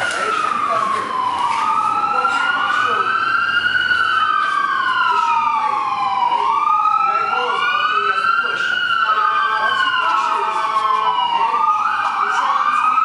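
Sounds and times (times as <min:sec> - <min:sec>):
second siren wail: 0:00.0 - 0:13.0
siren wailing: 0:00.0 - 0:13.0.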